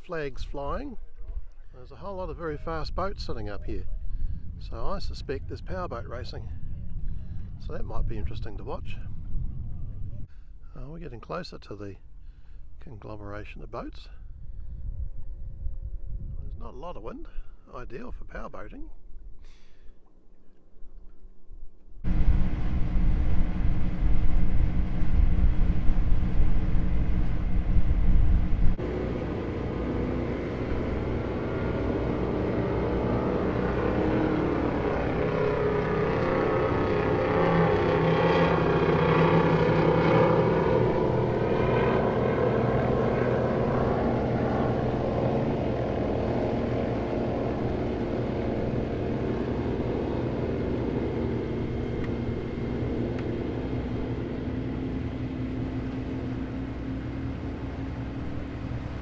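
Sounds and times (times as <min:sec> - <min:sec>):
heavy low rumble: 0:00.0 - 0:12.2, 0:22.0 - 0:59.0
motorboat engine drone: 0:22.0 - 0:59.0.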